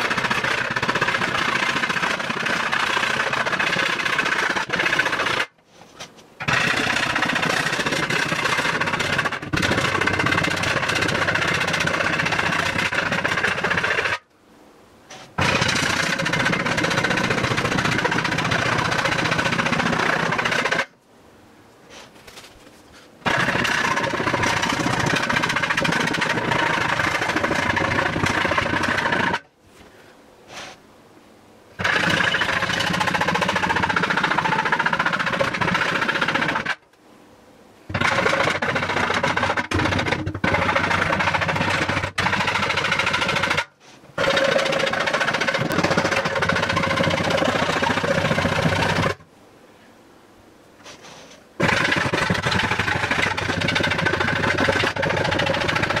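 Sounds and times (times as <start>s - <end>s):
small power tool running: 0.0s - 5.5s, 6.4s - 14.2s.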